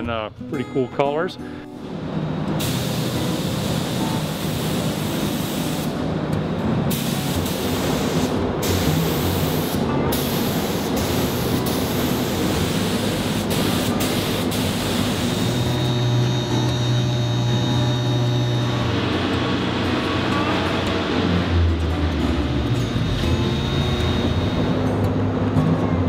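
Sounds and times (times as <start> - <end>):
paint spray gun hissing: 2.6 - 5.9, 6.9 - 16.1.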